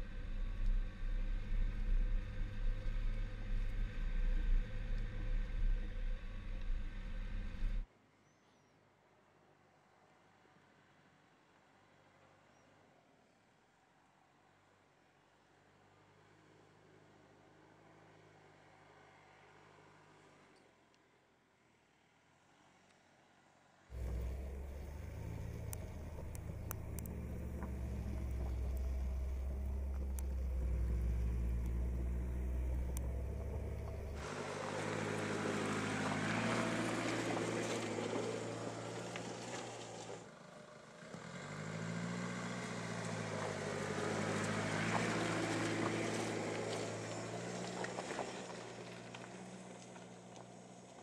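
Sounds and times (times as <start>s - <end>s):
deep rumble: 0.0s - 7.8s, 23.9s - 34.3s
diesel engine: 0.0s - 7.8s, 23.9s - 51.0s.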